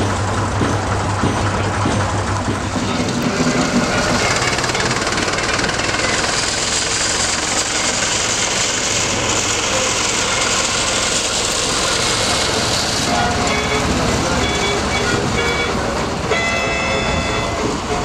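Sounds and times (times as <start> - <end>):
diesel locomotive engine knocking: 0.0 - 18.0.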